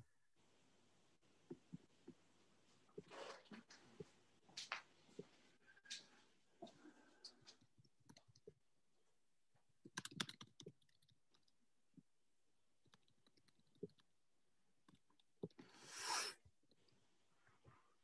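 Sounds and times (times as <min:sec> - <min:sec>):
computer keyboard and mouse clicks: 0:09.9 - 0:11.5.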